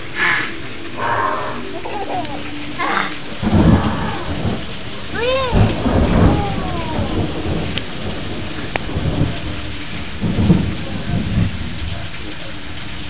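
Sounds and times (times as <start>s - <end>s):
steady rain hiss: 0.0s - 13.0s
low rumbling thumps: 2.4s - 12.0s
child's high voice: 5.1s - 7.3s.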